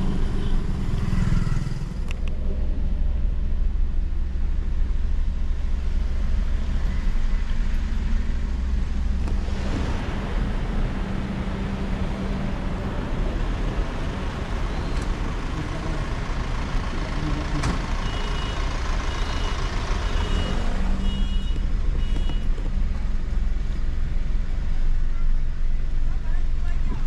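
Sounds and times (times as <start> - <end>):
road rumble: 0.0 - 27.0
car engine idling: 1.8 - 26.8.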